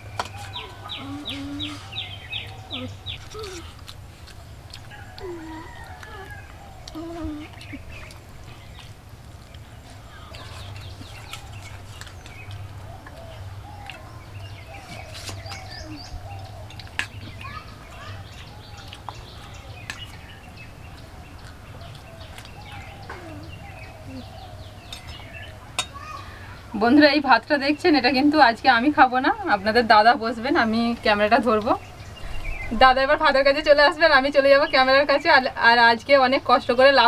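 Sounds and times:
chickens clucking: 0:09.6 - 0:26.7.

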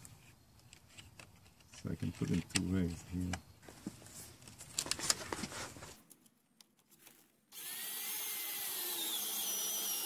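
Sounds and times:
cordless drill whining: 0:07.5 - 0:10.0.

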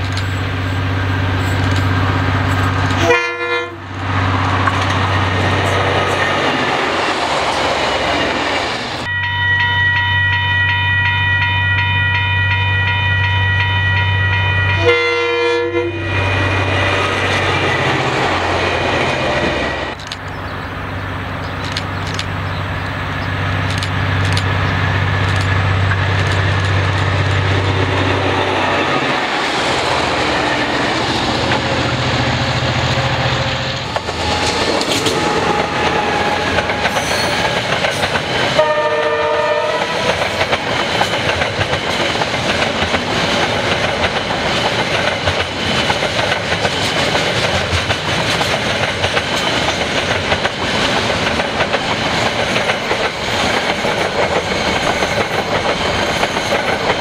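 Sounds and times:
locomotive engine drone: 0:00.0 - 0:10.4, 0:11.0 - 0:57.0
locomotive horn: 0:03.0 - 0:04.0, 0:09.1 - 0:17.0, 0:38.6 - 0:40.2
wheels clicking over rail joints: 0:33.8 - 0:38.6, 0:39.8 - 0:57.0.

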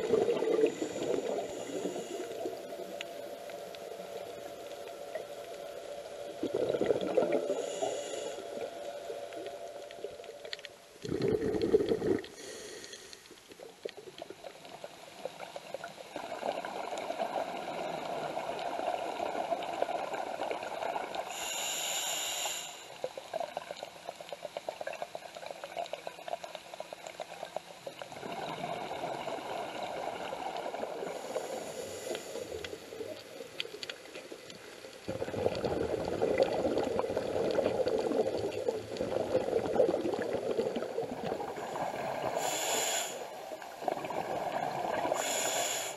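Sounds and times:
exhaled bubbles rushing: 0:00.0 - 0:02.0, 0:06.3 - 0:07.6, 0:11.0 - 0:12.4, 0:28.0 - 0:31.1, 0:35.0 - 0:42.5, 0:43.7 - 0:45.3
regulator inhalation hiss: 0:00.6 - 0:04.7, 0:07.5 - 0:08.9, 0:12.4 - 0:13.4, 0:21.3 - 0:23.0, 0:31.0 - 0:32.9, 0:42.2 - 0:43.6, 0:45.0 - 0:45.9.

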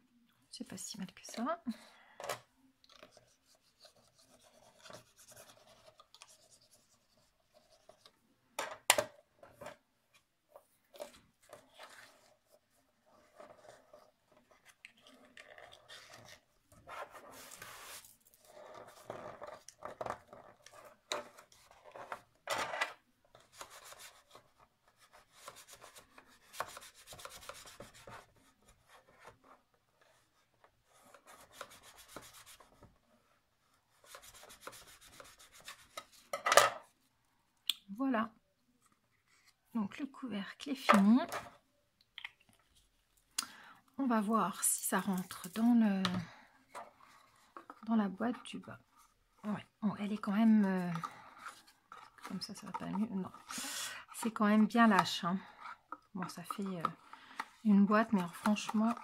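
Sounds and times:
cardstock rustling and scraping: 0:10.8 - 0:33.0, 0:50.0 - 0:59.0
bone folder rubbing paper edges: 0:34.0 - 0:36.0.

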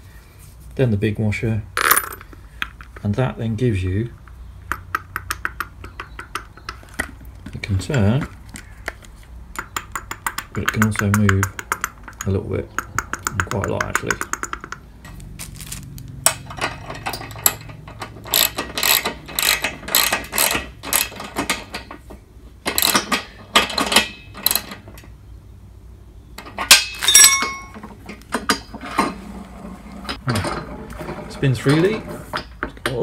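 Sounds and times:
socket ratchet clicking: 0:17.4 - 0:21.2
metal clink ringing: 0:26.7 - 0:27.8.

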